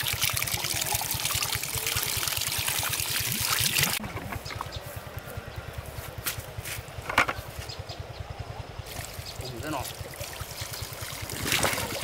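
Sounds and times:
water gushing and splashing: 0.0s - 4.3s, 8.8s - 12.0s
small engine puttering: 0.0s - 12.0s.

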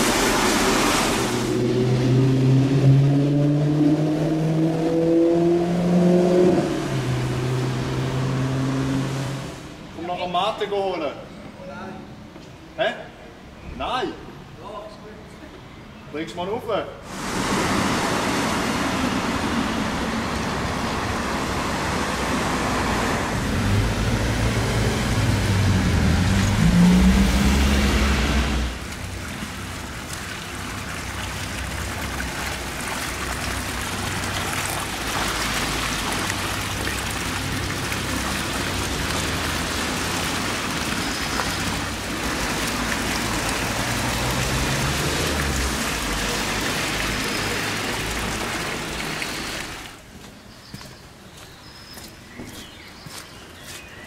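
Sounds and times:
fountain water splashing: 0.0s - 2.9s, 17.0s - 50.2s
vehicle engine passing: 0.0s - 9.9s, 17.1s - 29.4s, 33.6s - 49.9s
street traffic: 0.0s - 54.0s.

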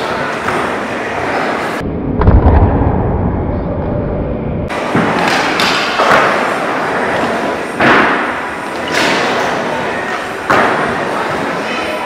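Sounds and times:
scooters thudding and clattering: 4.9s - 11.5s.

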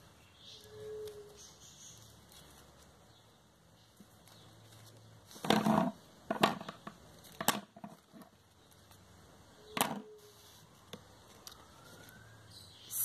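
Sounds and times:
ribbon rustling and crinkling: 2.0s - 3.0s, 4.0s - 6.0s.

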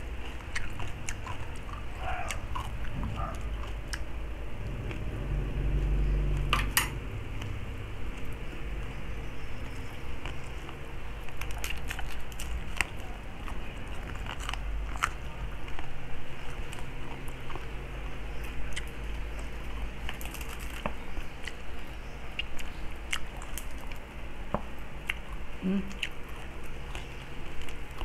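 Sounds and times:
chewing crispy food: 0.0s - 28.0s
low steady hum: 0.0s - 28.0s.

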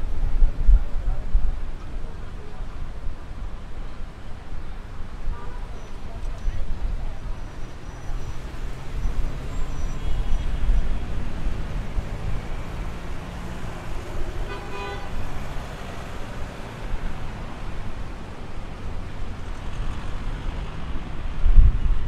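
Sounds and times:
street traffic rumbling: 0.0s - 22.0s
vehicle horn toot: 9.8s - 10.8s, 14.4s - 15.3s.

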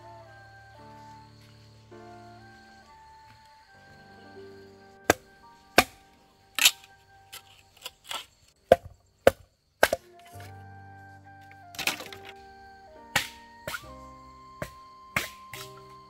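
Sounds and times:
background music of held tones: 0.0s - 8.0s, 10.0s - 16.0s
chopping blows on wood: 8.7s - 10.1s, 14.6s - 15.8s.

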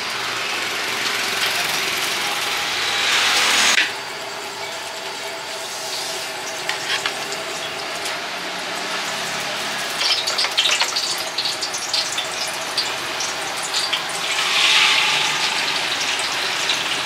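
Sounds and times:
street traffic: 0.0s - 4.0s
gas burner roaring: 0.0s - 17.0s.

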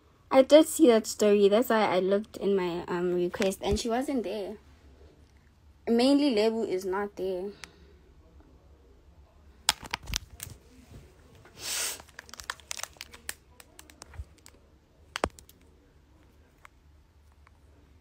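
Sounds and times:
fingers tapping phone screen: 15.2s - 15.6s.

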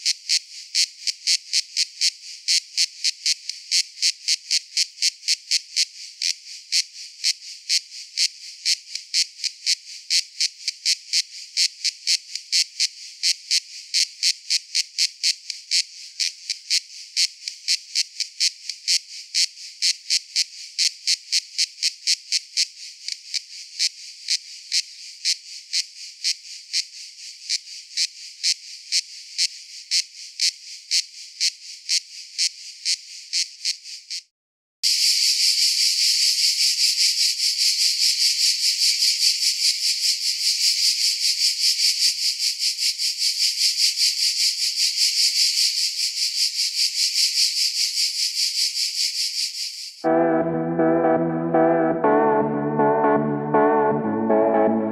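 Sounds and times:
cicada buzzing chorus: 34.9s - 50.0s.

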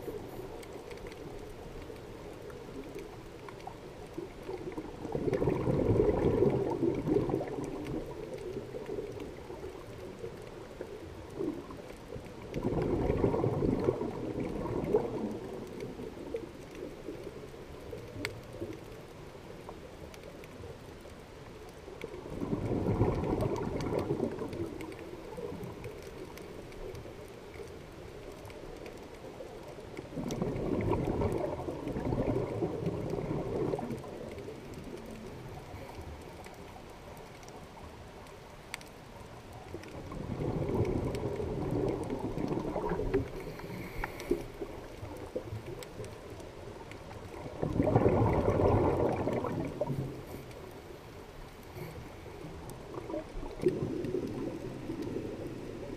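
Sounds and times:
gurgling exhaust bubbles underwater: 0.0s - 55.9s
diver breathing through regulator: 43.4s - 44.6s.

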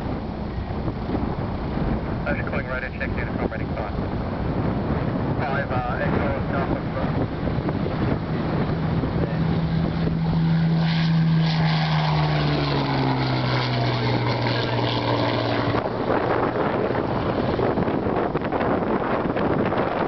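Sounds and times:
propeller plane engine passing: 0.0s - 20.0s.

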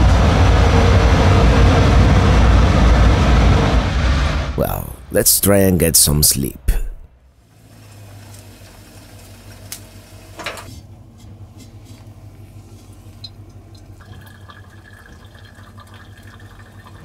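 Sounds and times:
low steady hum: 4.6s - 17.0s
hot water pouring into filter: 12.8s - 17.0s.

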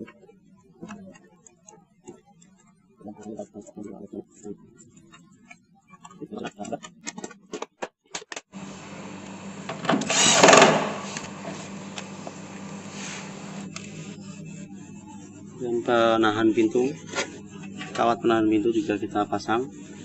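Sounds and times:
steady hum: 8.6s - 20.0s
panel clicks and knocks: 9.7s - 12.4s
loud scraping rush: 10.0s - 13.7s.

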